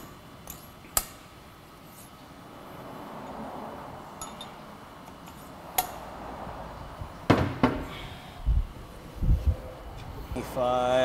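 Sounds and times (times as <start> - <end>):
metal tools clinking: 0.0 - 1.0, 4.2 - 6.0
heavy metal knocks: 7.3 - 7.9.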